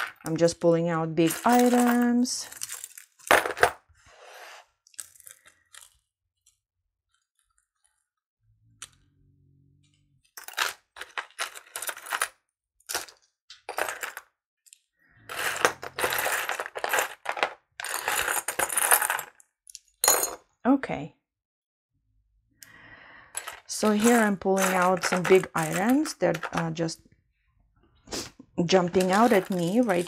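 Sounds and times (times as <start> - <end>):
small metal jewelry clinking: 1.2 - 3.6, 23.4 - 26.7, 29.0 - 30.0.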